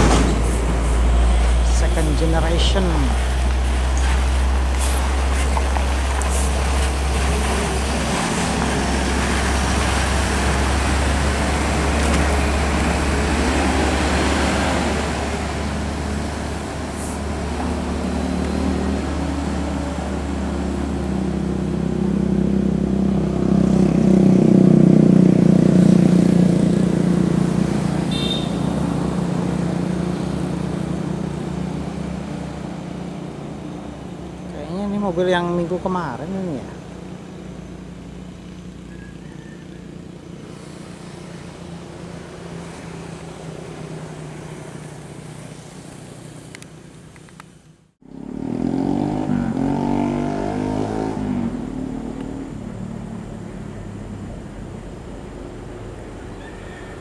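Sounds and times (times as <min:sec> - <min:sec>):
diesel coach engine: 0:00.0 - 0:48.4.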